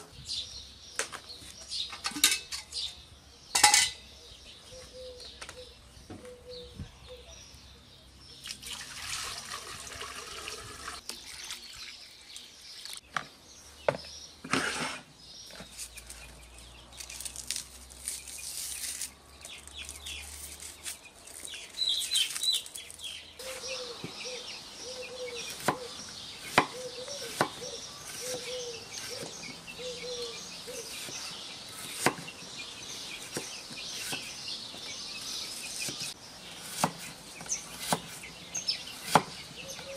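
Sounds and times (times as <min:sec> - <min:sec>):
onion skins rustling: 0:15.5 - 0:23.6.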